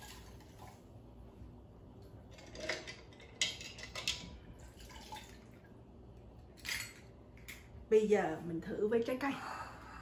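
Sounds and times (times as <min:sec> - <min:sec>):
water sloshing and dripping: 0:04.5 - 0:05.8.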